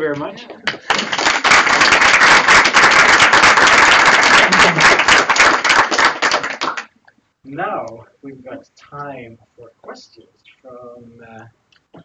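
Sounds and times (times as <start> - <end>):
audience applause: 0.6 - 6.9.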